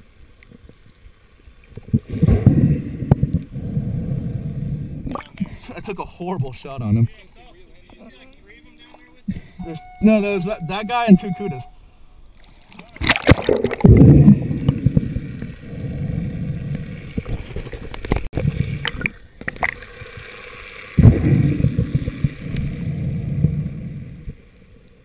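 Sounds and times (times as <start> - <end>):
underwater rush and gurgle: 0.0 - 7.0, 12.3 - 25.0.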